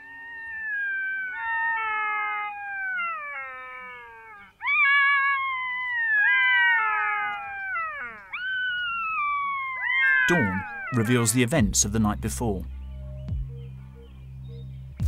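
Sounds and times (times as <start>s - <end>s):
jackals howling: 0.0s - 11.5s.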